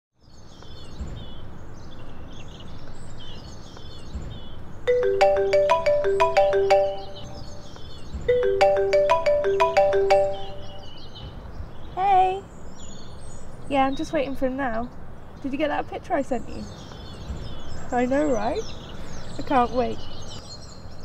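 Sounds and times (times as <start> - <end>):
birds chirping: 0.3 - 21.0
phone ringtone melody: 4.9 - 11.0.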